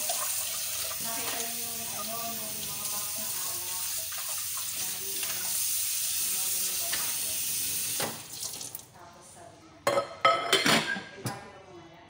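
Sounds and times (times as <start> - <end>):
tap running into sink: 7.9 - 8.8.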